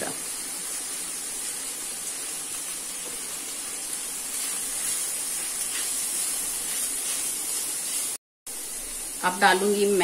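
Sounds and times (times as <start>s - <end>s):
vegetables sizzling: 0.0s - 10.0s
wooden spatula stirring: 4.3s - 8.2s.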